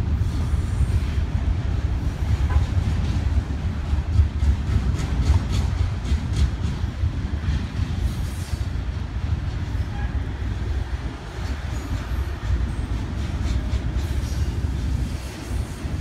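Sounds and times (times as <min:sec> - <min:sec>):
freight train wheels rumbling: 0:00.0 - 0:16.0.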